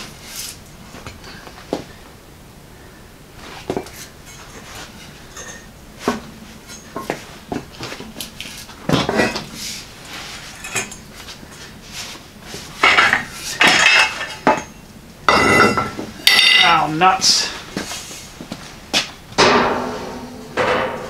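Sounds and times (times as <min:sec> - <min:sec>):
metal tube clanking on concrete: 0:12.8 - 0:16.9.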